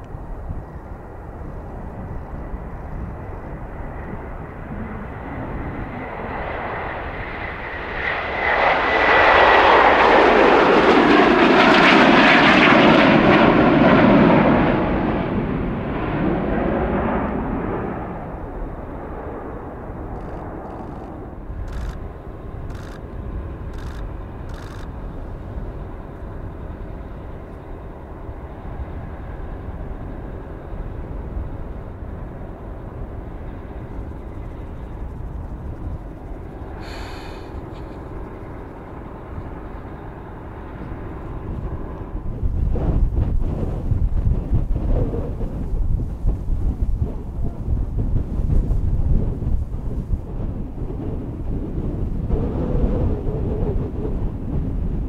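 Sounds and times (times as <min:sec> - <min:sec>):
jet taking off: 0:00.0 - 0:55.0
sharp clicks: 0:20.1 - 0:23.1, 0:23.7 - 0:25.0.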